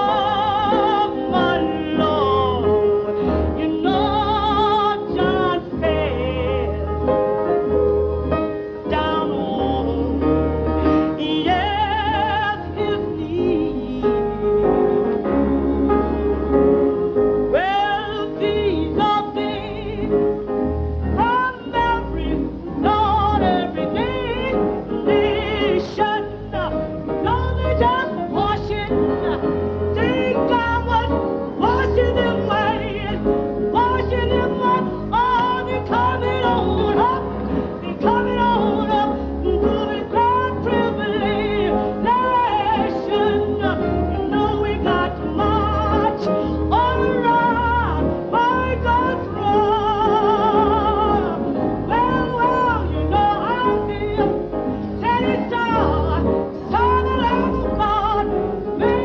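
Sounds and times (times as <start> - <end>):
woman singing gospel: 0.0 - 7.0, 8.9 - 14.5, 21.2 - 54.4
piano accompaniment: 0.0 - 59.0.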